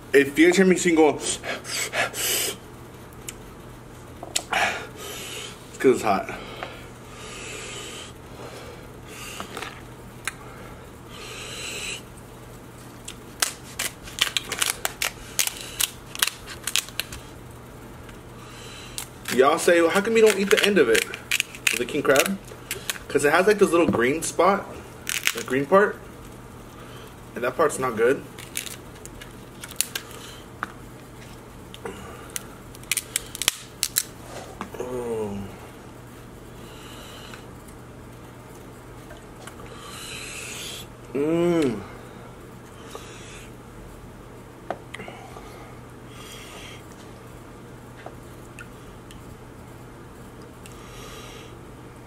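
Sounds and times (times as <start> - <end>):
crab shells cracking by hand: 13.0 - 17.2, 20.0 - 23.1, 25.0 - 25.5, 28.4 - 30.2, 32.3 - 34.1.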